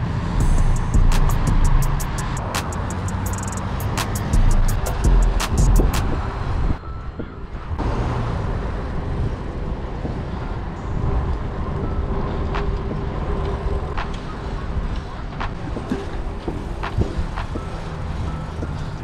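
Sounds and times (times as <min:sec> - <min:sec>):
wind rush on microphone: 0:00.0 - 0:19.0
bike tyres rolling on asphalt: 0:07.8 - 0:19.0.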